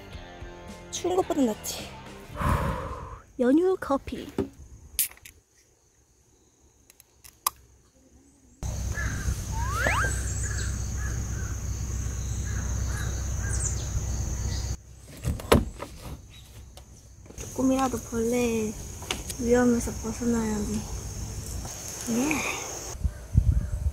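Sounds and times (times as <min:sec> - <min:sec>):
birds calling: 0:08.6 - 0:15.0
high-pitched drone: 0:09.3 - 0:10.9.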